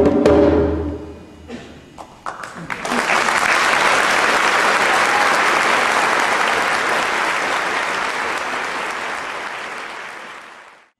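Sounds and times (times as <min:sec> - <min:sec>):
audience applause: 0:02.2 - 0:10.9.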